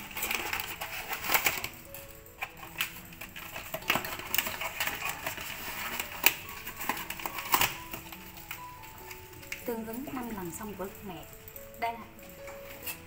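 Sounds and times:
plastic packets crinkling: 0:00.0 - 0:13.0.

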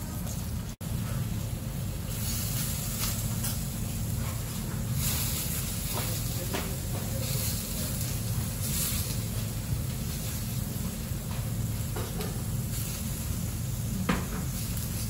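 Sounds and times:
food sizzling in oil: 0:00.0 - 0:15.0.

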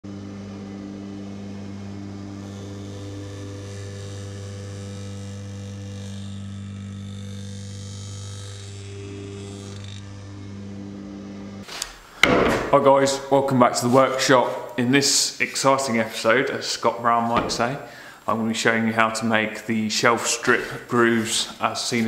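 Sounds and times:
electric saw motor humming: 0:00.0 - 0:11.7.

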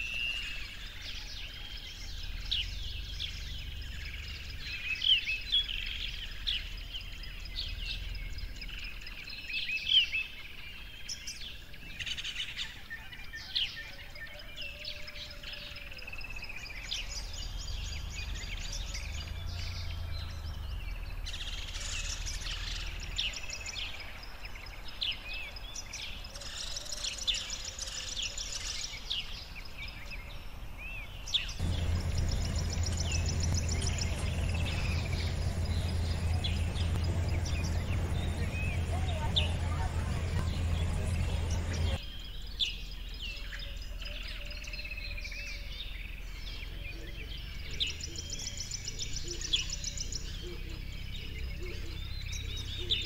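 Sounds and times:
small birds chirping and singing: 0:00.0 - 0:53.0
low steady rumble: 0:31.6 - 0:42.0.

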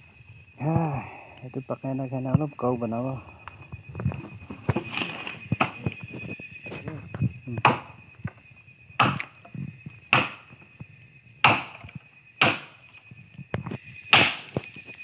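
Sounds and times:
machete chopping bamboo: 0:07.6 - 0:07.9, 0:09.0 - 0:09.3, 0:10.1 - 0:10.4, 0:11.4 - 0:11.8, 0:12.4 - 0:12.8, 0:14.1 - 0:14.5.

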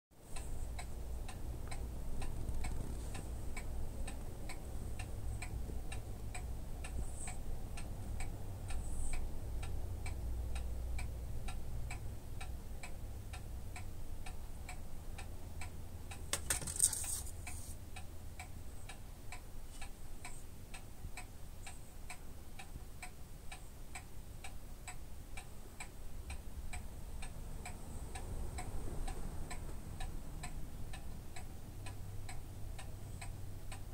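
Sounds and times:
clock ticking: 0:00.2 - 0:33.9
brief rustle: 0:16.4 - 0:17.8.

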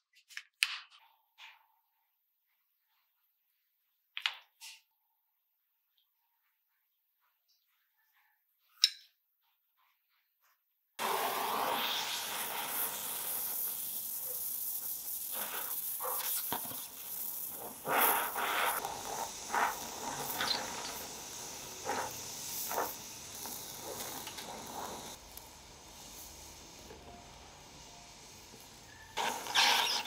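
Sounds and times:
crackles and pops: 0:11.0 - 0:30.0
gas torch flame hissing: 0:11.0 - 0:30.0.

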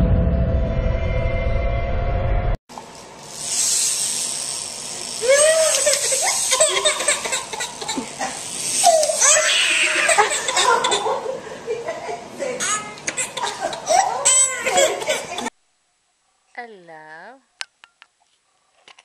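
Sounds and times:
steady hiss: 0:02.8 - 0:11.8
baby crying: 0:08.8 - 0:11.2.

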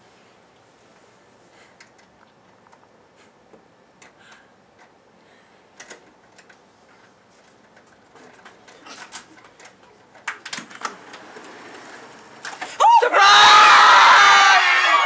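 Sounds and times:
small clicks and rustles: 0:05.8 - 0:12.8.

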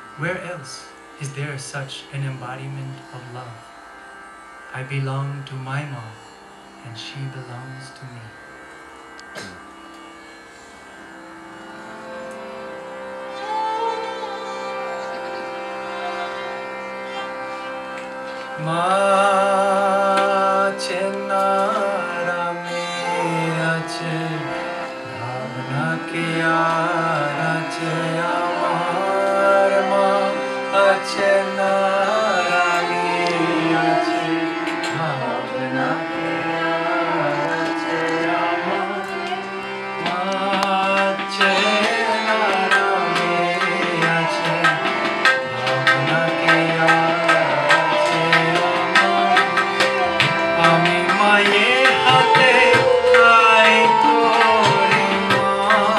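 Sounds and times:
bowed string instrument: 0:00.0 - 0:55.9
harmonium: 0:00.0 - 0:55.9
man singing: 0:18.4 - 0:55.9
tabla drumming: 0:40.0 - 0:55.9.

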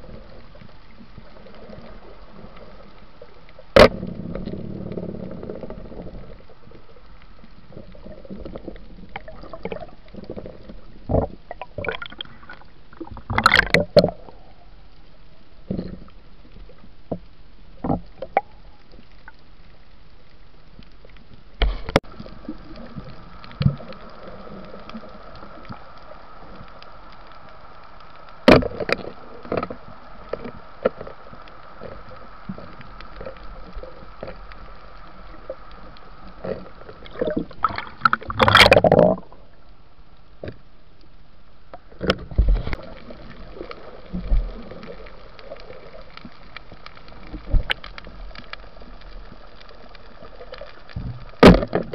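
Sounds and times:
underwater water noise: 0:00.0 - 0:51.9.

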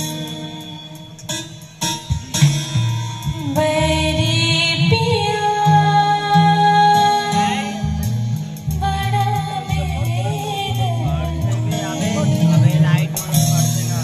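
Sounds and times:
live band music: 0:00.0 - 0:14.0
person singing: 0:03.2 - 0:14.0.

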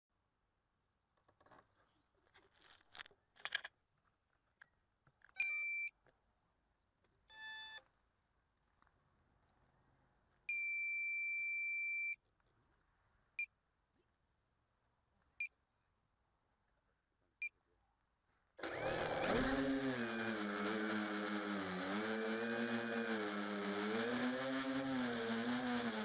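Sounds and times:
drone motors whining: 0:18.6 - 0:26.0.

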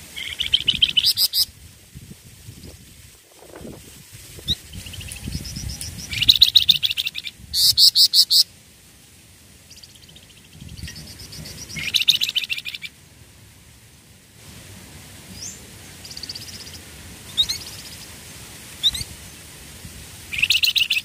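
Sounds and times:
bird chirping trills: 0:09.7 - 0:13.0, 0:15.3 - 0:18.2
loud clear bird notes: 0:09.7 - 0:13.0.

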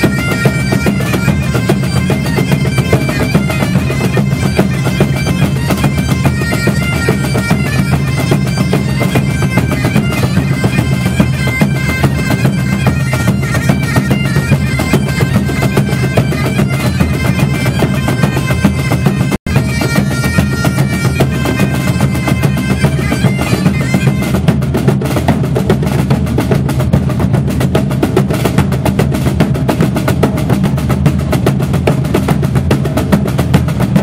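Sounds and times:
bagpipes playing: 0:00.0 - 0:24.5
big drums pounding: 0:00.0 - 0:34.0
snare drum: 0:00.0 - 0:34.0.

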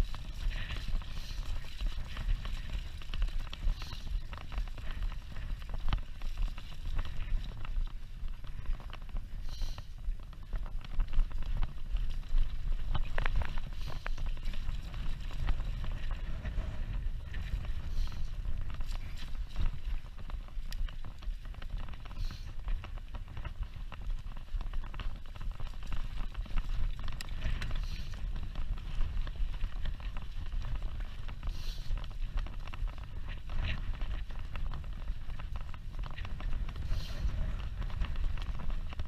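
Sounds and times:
wind rumbling on microphone: 0:00.0 - 0:39.0.

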